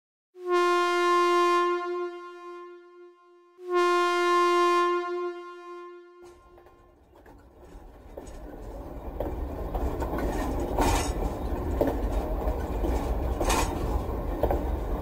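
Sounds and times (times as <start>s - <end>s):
long horn blasts: 0.4s - 6.9s
rail vehicle rumbling: 3.9s - 15.0s.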